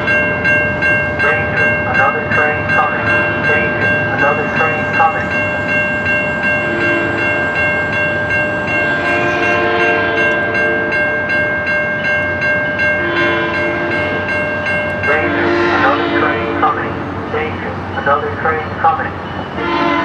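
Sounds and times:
crossing bell ringing: 0:00.0 - 0:20.0
train horn blasts: 0:06.6 - 0:07.4, 0:08.8 - 0:11.0, 0:13.0 - 0:14.1, 0:15.1 - 0:16.9, 0:19.6 - 0:20.0.

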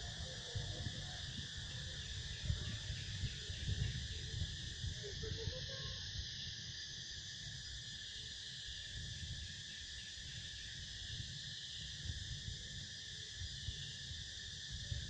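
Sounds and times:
low uneven rumble: 0:00.0 - 0:05.8
insect chorus buzzing: 0:00.0 - 0:15.0.

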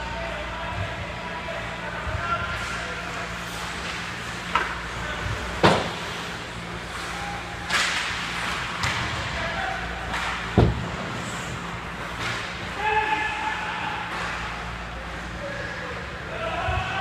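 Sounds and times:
steady low hum: 0:00.0 - 0:17.0
skates scraping on ice: 0:02.5 - 0:15.3
stick hitting puck: 0:07.6 - 0:09.4.

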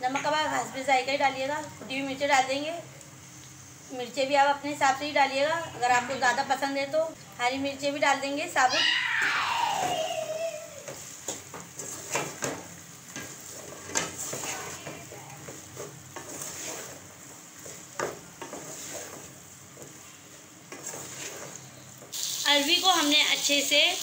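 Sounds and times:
vegetables sizzling in oil: 0:00.0 - 0:24.0
wooden spoon scraping a pot: 0:10.8 - 0:22.1.

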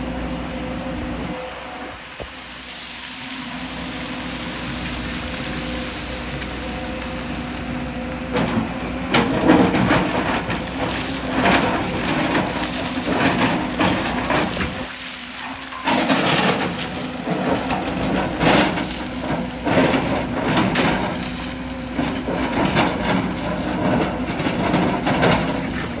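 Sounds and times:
excavator engine running: 0:00.0 - 0:26.0
excavator bucket scraping rock: 0:03.6 - 0:26.0
rock debris crashing down: 0:09.2 - 0:26.0.

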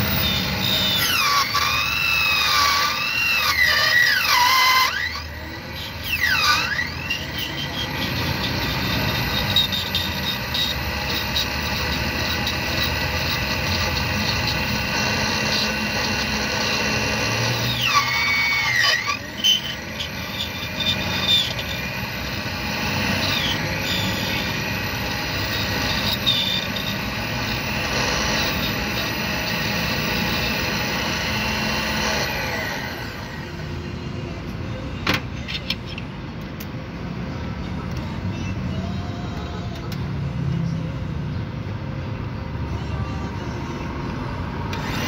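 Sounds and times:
cutter squealing on key: 0:00.0 - 0:33.6
machine winding down: 0:00.0 - 0:34.0, 0:44.6 - 0:45.0
key cutting machine humming: 0:05.3 - 0:33.7.

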